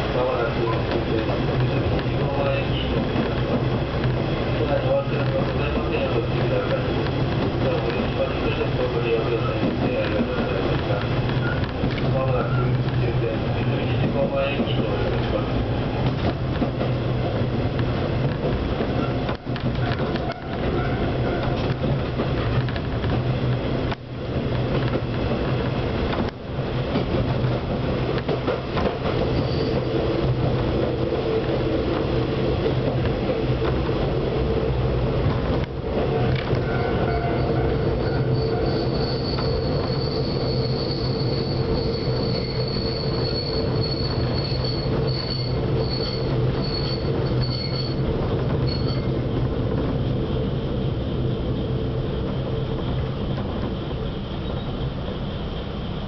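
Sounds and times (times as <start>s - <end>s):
railcar engine drone: 0.0s - 56.0s
wheel and rail noise: 0.0s - 56.0s
high thin squeal: 36.8s - 48.0s.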